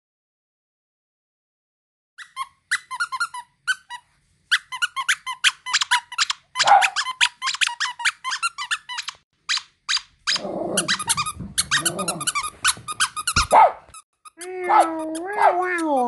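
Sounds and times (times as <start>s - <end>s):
dog toy squeaking: 2.2s - 16.0s.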